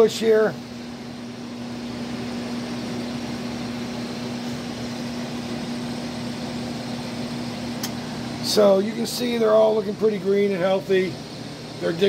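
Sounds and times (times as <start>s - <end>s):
fans whirring: 0.0s - 12.0s
steady humming tone: 0.0s - 12.0s.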